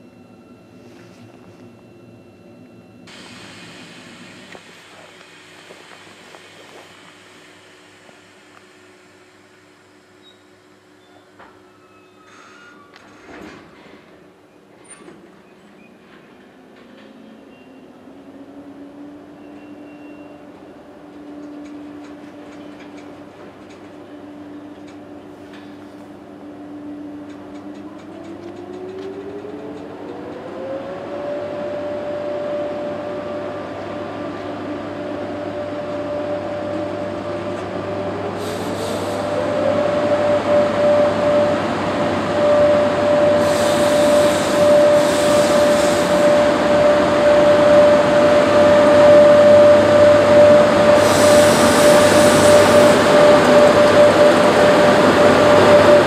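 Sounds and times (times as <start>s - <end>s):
train rumble: 0.0s - 9.9s, 16.0s - 56.0s
electric locomotive whine: 0.0s - 56.0s
high-pitched hissing bursts: 43.4s - 46.4s, 51.0s - 53.8s.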